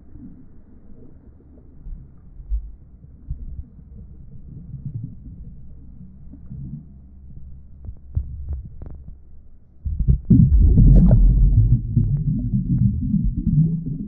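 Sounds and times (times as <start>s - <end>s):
underwater water surge rumble: 9.9s - 14.0s.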